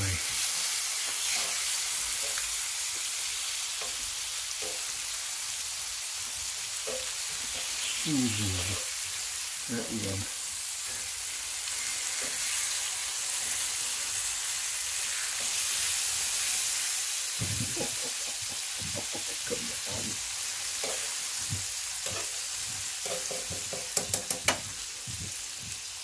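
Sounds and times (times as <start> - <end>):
meat sizzling in a skillet: 0.0 - 26.0
tongs knocking in pan: 4.6 - 4.9, 6.8 - 7.6, 17.4 - 25.2.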